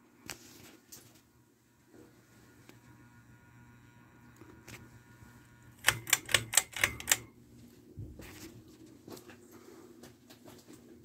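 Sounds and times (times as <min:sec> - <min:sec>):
ceiling fan motor hum: 0:00.0 - 0:11.0
sharp clicks: 0:05.8 - 0:07.3.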